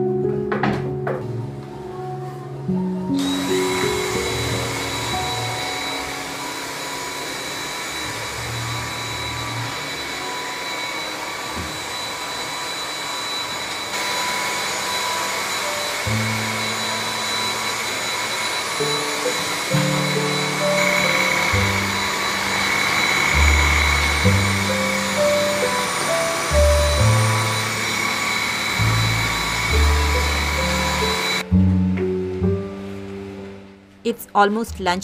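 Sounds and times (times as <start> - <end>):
background music: 0.0 - 11.7, 18.8 - 35.0
stick vacuum whining: 3.1 - 33.5.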